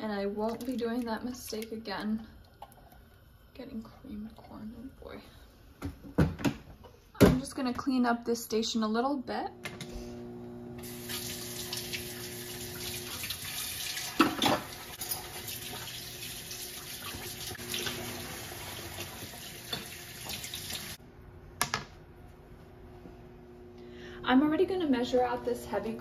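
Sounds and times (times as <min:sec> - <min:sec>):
faucet running into sink: 0:10.8 - 0:21.0.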